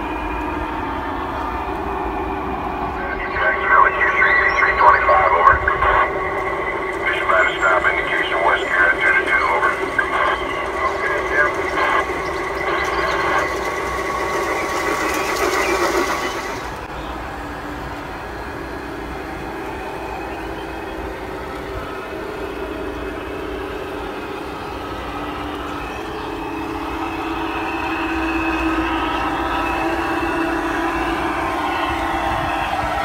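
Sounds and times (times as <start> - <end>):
model train running: 0.0 - 33.0.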